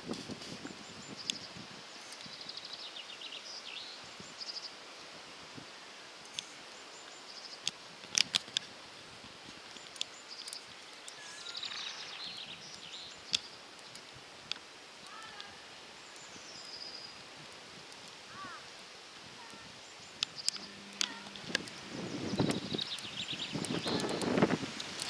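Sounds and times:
outdoor background hiss: 0.0s - 25.0s
songbirds trilling and chirping: 0.0s - 25.0s
sharp clicks: 20.2s - 25.0s.

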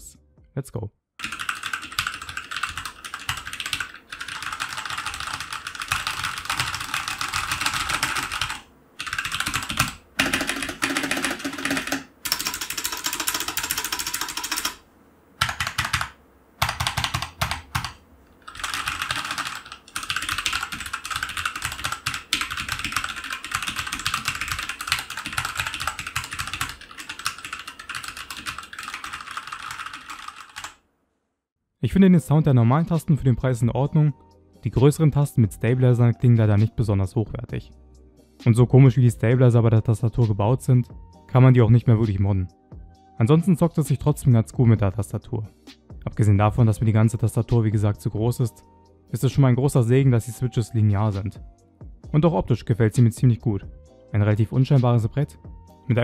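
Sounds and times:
fast typing on mechanical keyboard: 1.2s - 14.8s, 15.4s - 30.8s.

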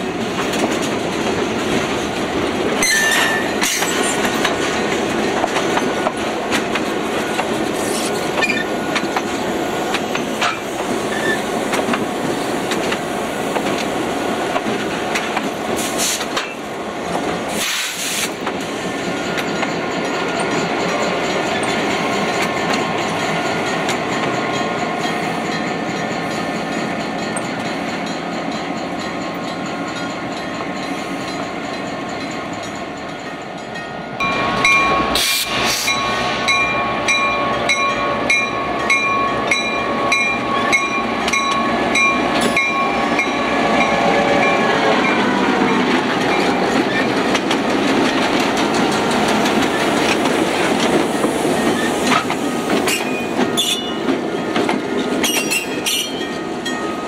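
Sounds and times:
diesel locomotive engines running: 0.0s - 57.0s
locomotive bell ringing: 2.8s - 4.4s, 19.0s - 47.4s, 51.5s - 57.0s.

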